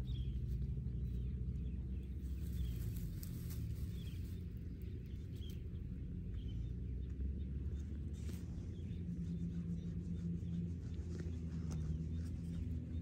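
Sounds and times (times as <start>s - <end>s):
wind rumble on microphone: 0.0s - 13.0s.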